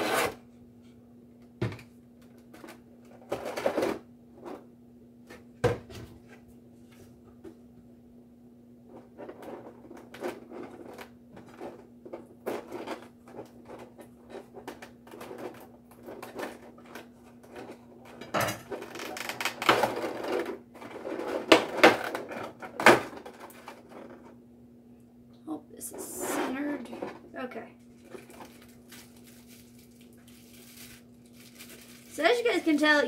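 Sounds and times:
sharp plastic crack: 18.8s - 20.5s
plastic tray crinkling: 27.9s - 32.9s.

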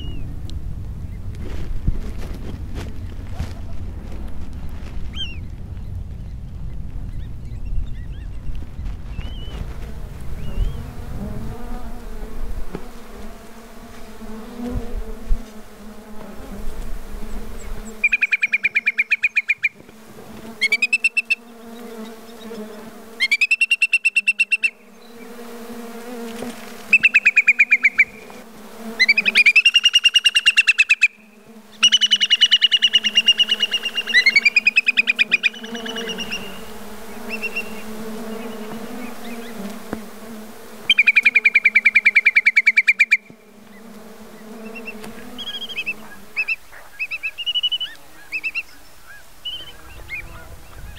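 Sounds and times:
birds whistling rippling trills: 4.7s - 9.7s, 10.4s - 10.9s, 17.6s - 19.8s, 29.0s - 39.6s, 40.9s - 50.9s.

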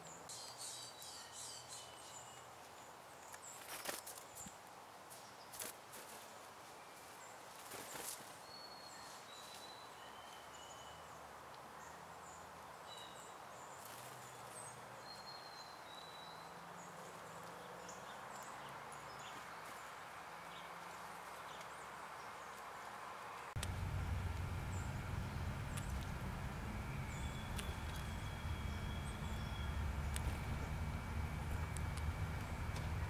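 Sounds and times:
bird wings fluttering: 3.5s - 4.5s, 5.5s - 6.3s, 7.5s - 8.4s, 13.8s - 14.6s
faint low drone: 23.6s - 33.0s
high bird chirps: 23.8s - 33.0s.

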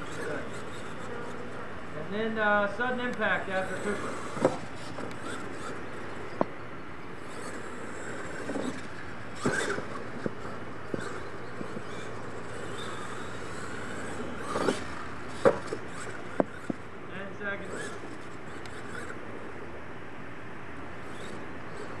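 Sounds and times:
toy truck knocks and thuds: 14.6s - 16.8s.

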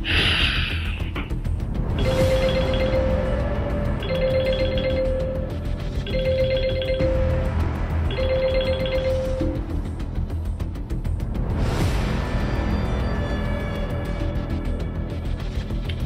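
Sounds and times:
background music: 0.0s - 16.0s
phone ringtone: 2.0s - 9.7s.

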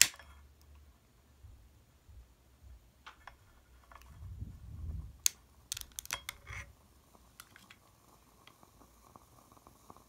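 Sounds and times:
lighter clicks and knocks: 5.2s - 6.6s, 7.3s - 8.6s.

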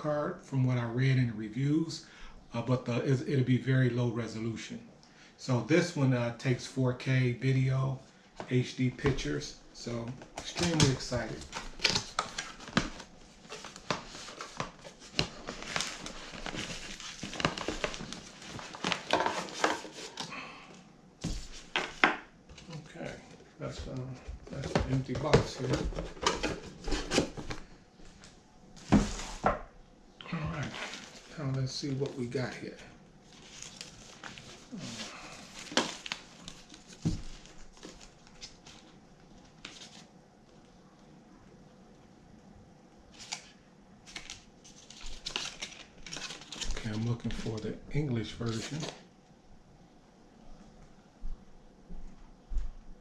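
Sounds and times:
packaging rustling: 9.9s - 20.3s, 33.2s - 40.1s, 43.2s - 47.6s.

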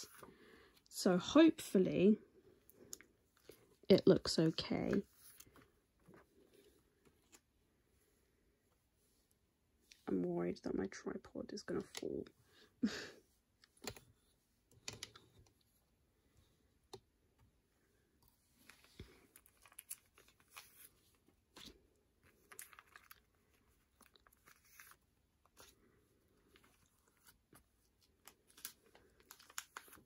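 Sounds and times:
plastic sleeves crinkling: 18.4s - 30.0s.

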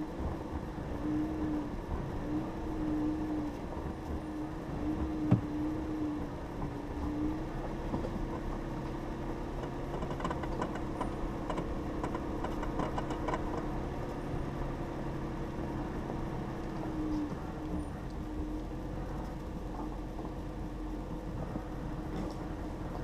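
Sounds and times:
vehicle engine hum from inside: 0.0s - 23.0s
clicks and rattles: 9.6s - 13.7s.

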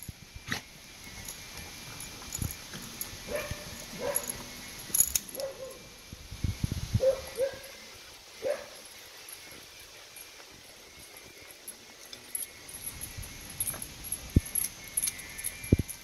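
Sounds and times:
dog yipping and whining: 3.3s - 4.4s, 7.0s - 7.8s.

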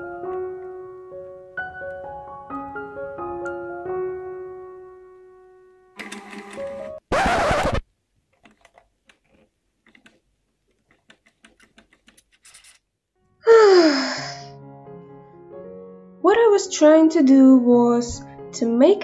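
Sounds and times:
faint clicks and scratches: 8.3s - 12.8s.

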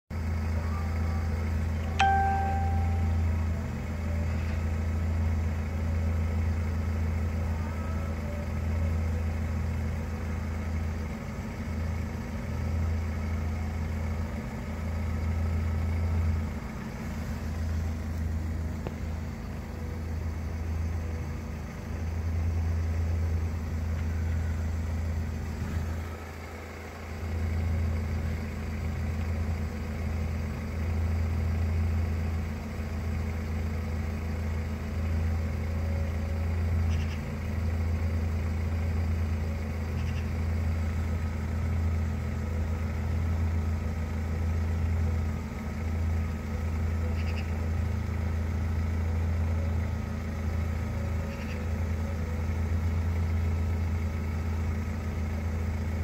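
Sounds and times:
car engine idling: 0.0s - 56.0s
short high beep: 2.0s - 3.4s.

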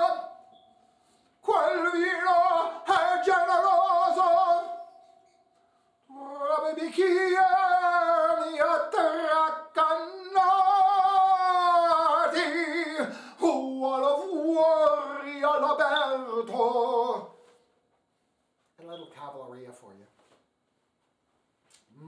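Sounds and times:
man singing operatic tenor: 0.0s - 0.5s, 1.4s - 4.9s, 6.1s - 17.4s.

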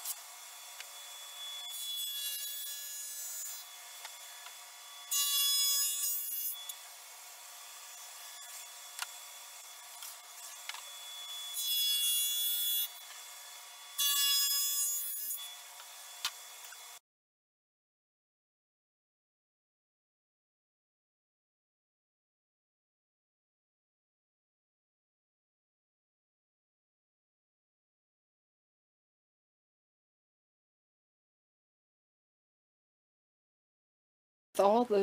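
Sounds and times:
saw cutting plywood: 0.0s - 6.8s, 7.6s - 17.0s.

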